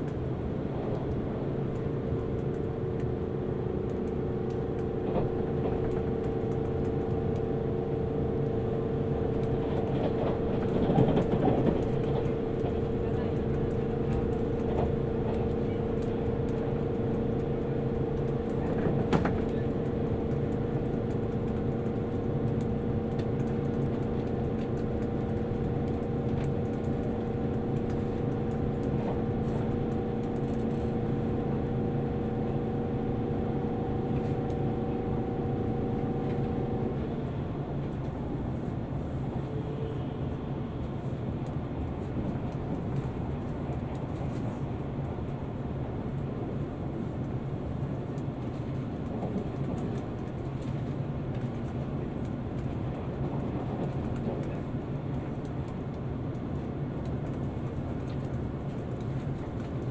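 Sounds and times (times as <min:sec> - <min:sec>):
train wheels rumbling on track: 0:00.0 - 0:59.9
multi-tone electric hum: 0:11.7 - 0:37.5.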